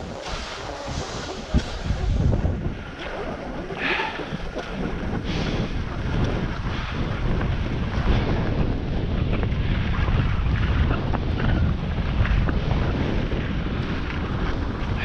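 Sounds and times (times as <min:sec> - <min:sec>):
skis scraping over snow: 0:00.0 - 0:15.0
wind buffeting microphone: 0:00.0 - 0:15.0.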